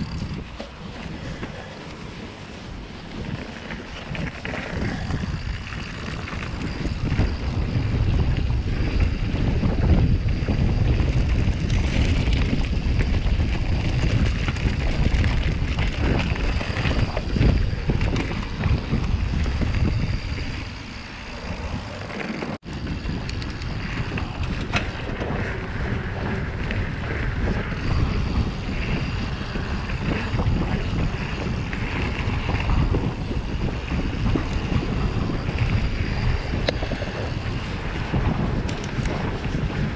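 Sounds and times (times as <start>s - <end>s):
mountain bike rumbling over rough ground: 0.0s - 39.9s
wind buffeting microphone: 0.0s - 39.9s.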